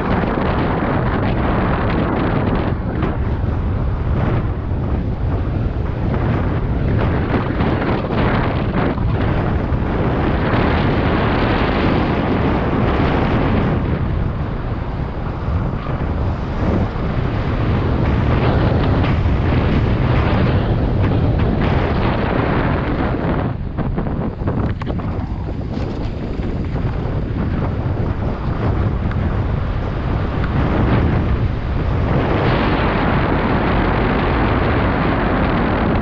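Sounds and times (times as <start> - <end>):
tyres rumbling on dirt trail: 0.0 - 36.0
wind buffeting microphone: 0.0 - 36.0
bike knocks and rattles: 15.3 - 32.1.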